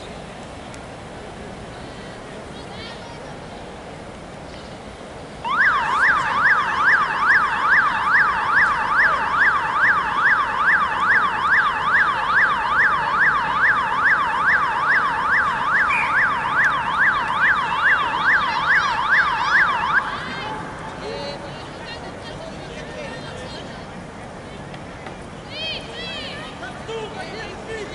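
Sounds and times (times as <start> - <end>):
electronic siren yelping: 5.4 - 21.0.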